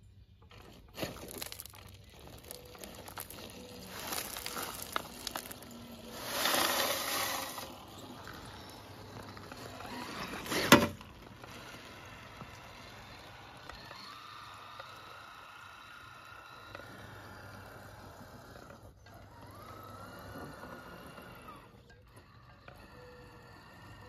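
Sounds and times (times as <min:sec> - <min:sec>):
soil pattering onto gravel: 0:00.5 - 0:12.9
small electric motor whining: 0:00.5 - 0:24.0.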